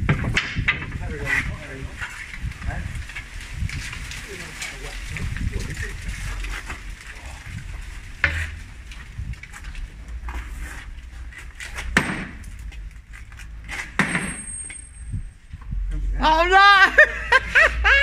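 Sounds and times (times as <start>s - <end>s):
sledgehammer striking concrete: 11.7s - 12.6s, 13.7s - 15.0s.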